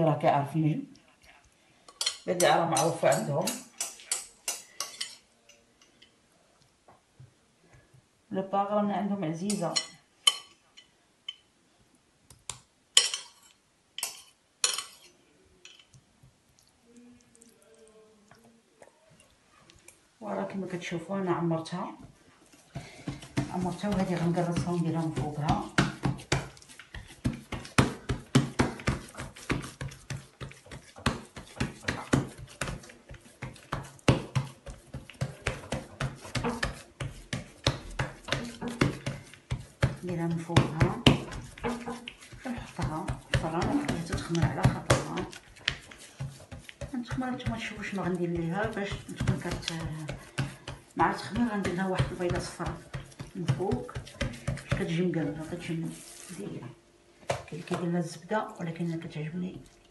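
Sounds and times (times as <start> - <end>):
metal spoon clinking against dish: 13.0 - 16.0
hands patting dough: 22.7 - 56.4.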